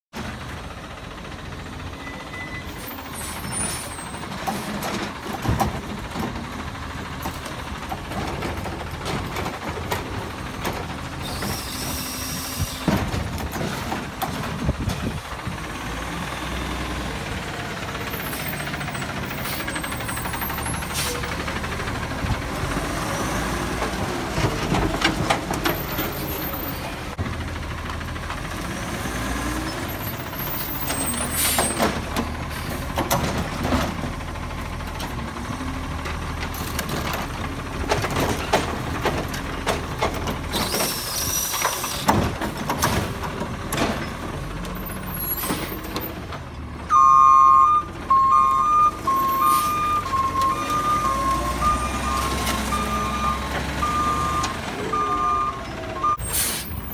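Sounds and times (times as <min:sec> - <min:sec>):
truck clunks: 0:00.1 - 0:56.9
garbage truck engine running: 0:00.2 - 0:56.9
air brake hiss: 0:11.2 - 0:12.9, 0:56.2 - 0:56.8.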